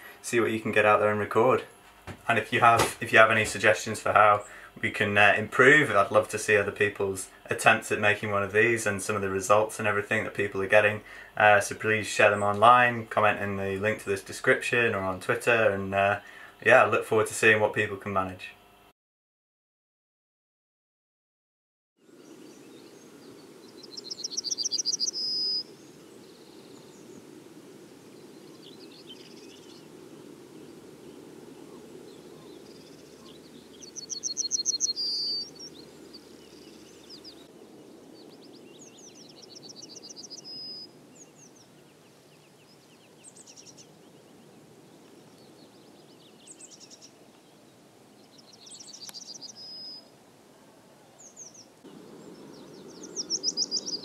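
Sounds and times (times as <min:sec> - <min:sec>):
low background hum: 0:00.0 - 0:18.9
bird singing: 0:22.0 - 0:27.4, 0:28.0 - 0:50.1, 0:50.9 - 0:54.0
faint bird chirps: 0:22.1 - 0:27.3, 0:30.5 - 0:54.0.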